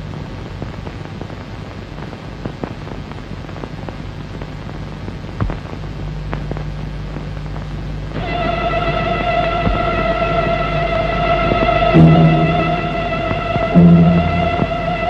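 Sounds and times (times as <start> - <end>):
steady hiss: 0.0 - 15.0
low hum: 8.1 - 15.0
loud thump: 12.0 - 15.0.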